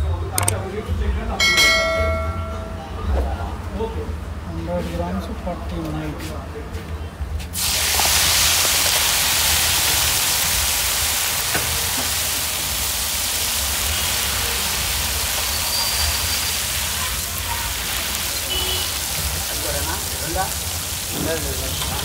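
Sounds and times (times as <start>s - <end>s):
chicken sizzling in hot oil: 7.6s - 22.0s.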